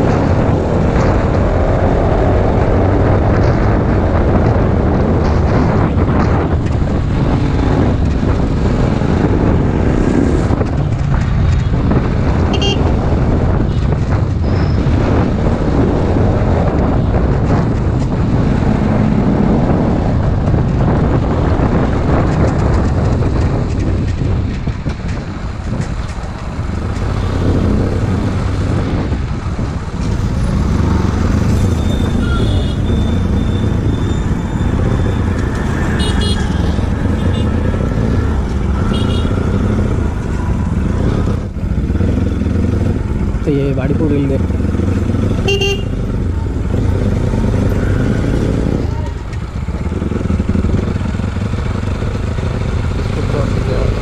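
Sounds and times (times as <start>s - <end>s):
wind and road noise: 0.0s - 54.0s
motorcycle engine running: 15.7s - 54.0s.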